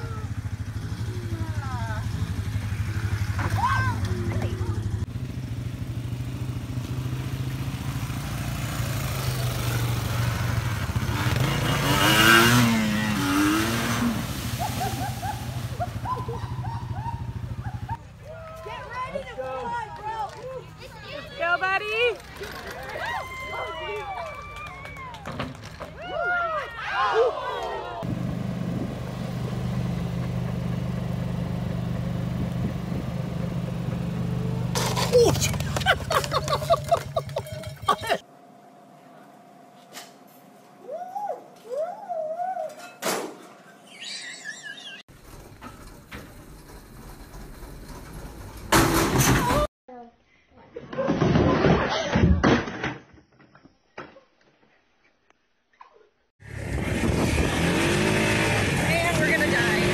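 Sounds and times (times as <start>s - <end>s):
dirt bike and atv engines: 0.0s - 24.2s, 27.0s - 38.3s, 56.4s - 59.9s
short rising calls: 43.6s - 45.1s.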